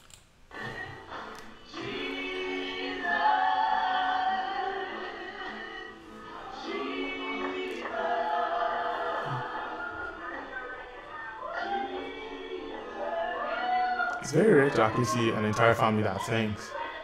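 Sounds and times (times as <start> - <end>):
group singing in harmony: 0.5 - 17.0.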